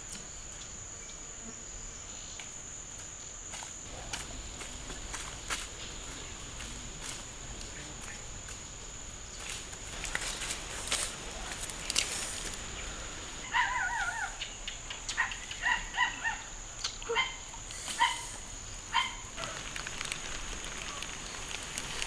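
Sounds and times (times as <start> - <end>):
high insect drone: 0.0 - 22.0
wavering animal calls: 13.4 - 14.5.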